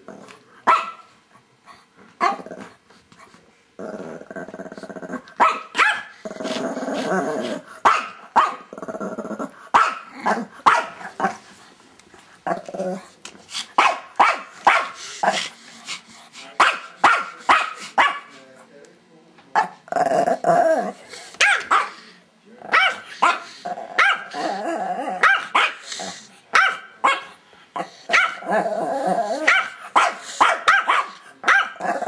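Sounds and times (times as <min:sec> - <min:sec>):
dog growling: 0:00.0 - 0:00.4, 0:03.8 - 0:05.4, 0:06.2 - 0:07.8, 0:08.5 - 0:11.5, 0:12.4 - 0:13.2, 0:19.6 - 0:21.1, 0:22.6 - 0:25.2, 0:27.8 - 0:29.6, 0:31.2 - 0:32.0
small dogs barking: 0:00.6 - 0:01.1, 0:05.4 - 0:06.2, 0:07.8 - 0:08.7, 0:09.7 - 0:11.3, 0:13.8 - 0:15.0, 0:16.6 - 0:18.3, 0:21.4 - 0:22.0, 0:22.7 - 0:24.4, 0:25.1 - 0:25.9, 0:26.5 - 0:27.4, 0:28.1 - 0:28.6, 0:29.4 - 0:32.0.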